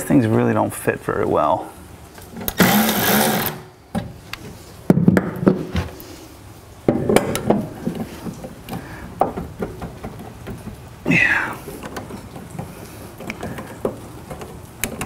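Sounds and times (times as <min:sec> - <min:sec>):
cordless drill running: 0:02.6 - 0:03.7
metal panel and tools clunking: 0:06.8 - 0:11.0.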